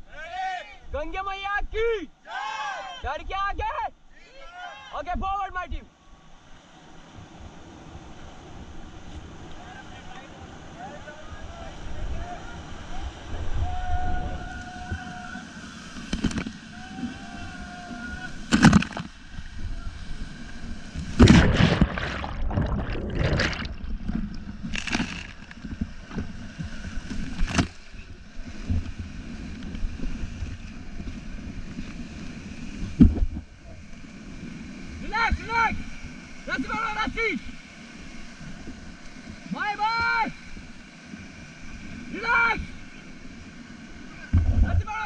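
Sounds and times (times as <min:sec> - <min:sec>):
water crashing onto camera: 0:21.0 - 0:26.3.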